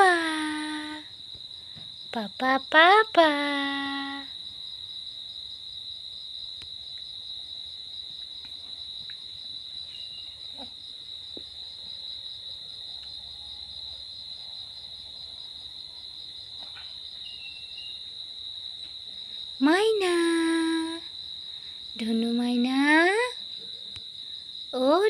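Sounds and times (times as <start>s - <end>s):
cricket trilling: 0.0s - 25.0s.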